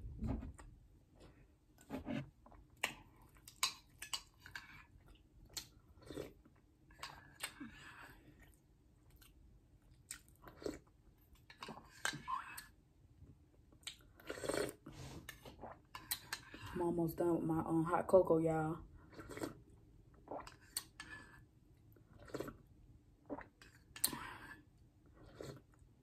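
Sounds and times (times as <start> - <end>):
chewing: 2.5 - 12.7, 19.0 - 19.6, 20.2 - 22.7, 25.1 - 25.8.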